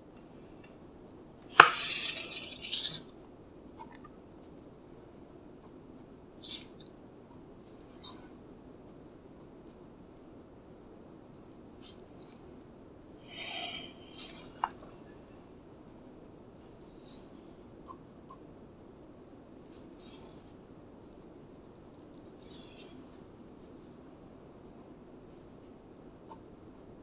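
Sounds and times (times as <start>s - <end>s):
paper sliding rustle: 1.5s - 3.0s.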